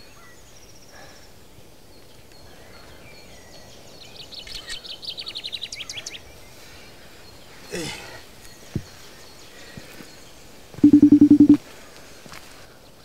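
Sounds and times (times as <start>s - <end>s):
faint high bird chirps: 10.8s - 11.6s.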